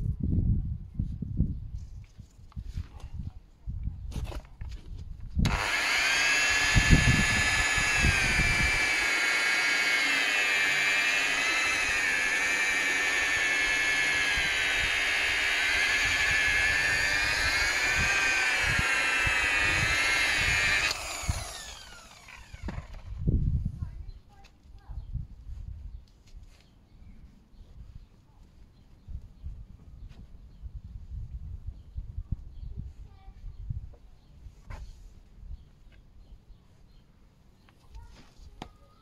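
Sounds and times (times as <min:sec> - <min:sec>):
rotary polisher motor whine: 0:05.5 - 0:23.1.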